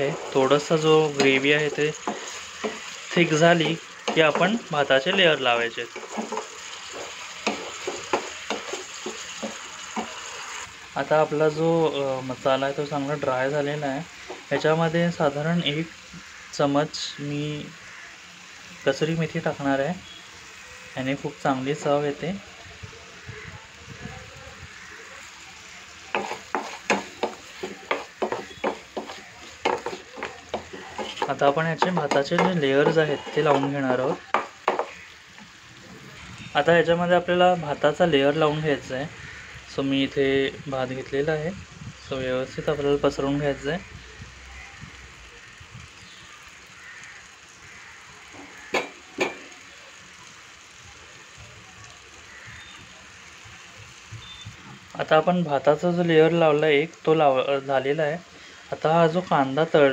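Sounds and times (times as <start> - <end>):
spatula scraping pan: 0.0 - 10.7, 26.1 - 35.1
food sizzling in metal pan: 0.0 - 59.9
sharp knocks: 34.3 - 35.0.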